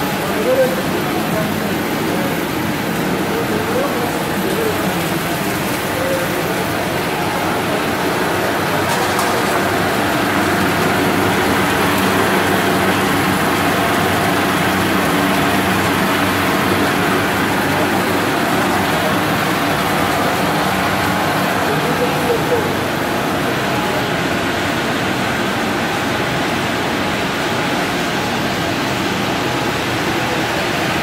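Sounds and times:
factory machinery running: 0:00.0 - 0:31.0.

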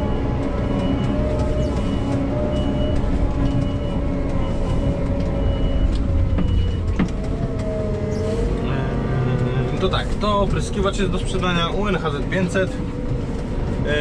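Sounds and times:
reversing alarm beeping: 0:00.0 - 0:08.5
diesel engine running: 0:00.0 - 0:14.0.

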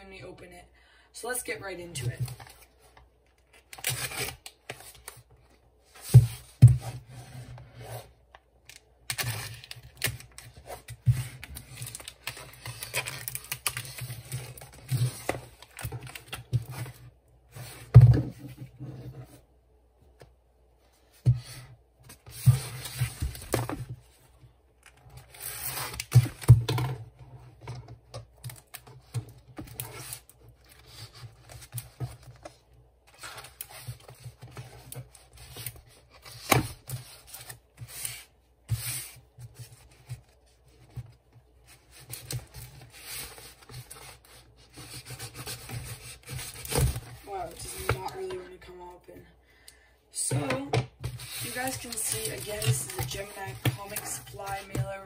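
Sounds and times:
cardboard tearing and scraping: 0:03.7 - 0:05.0, 0:09.1 - 0:16.2, 0:25.1 - 0:26.6.

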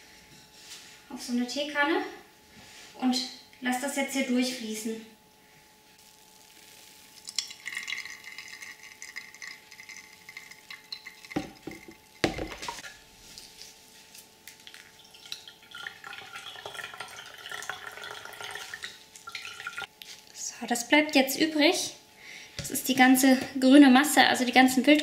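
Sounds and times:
juice trickling: 0:07.0 - 0:13.6, 0:14.4 - 0:19.9
juice pouring: 0:07.1 - 0:12.8, 0:14.6 - 0:19.9.

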